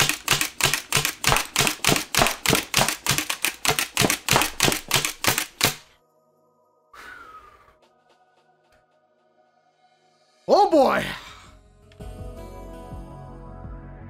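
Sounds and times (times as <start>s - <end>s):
foam blaster firing clacks: 0.0s - 5.9s.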